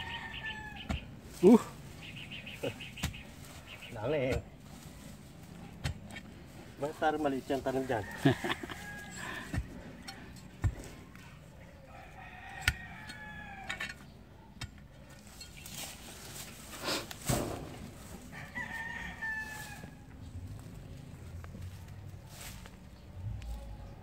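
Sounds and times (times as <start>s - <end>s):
rooster crowing: 0.0s - 0.9s, 7.9s - 9.4s, 11.8s - 13.8s, 18.3s - 20.0s
digging tool striking soil: 2.6s - 3.4s, 4.2s - 4.5s, 16.4s - 18.0s.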